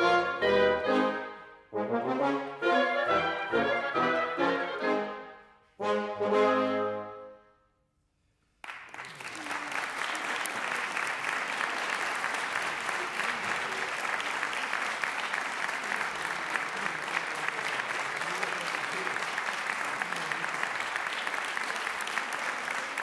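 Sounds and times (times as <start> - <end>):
wind ensemble chord: 0.0 - 7.4
audience applause: 8.6 - 23.0.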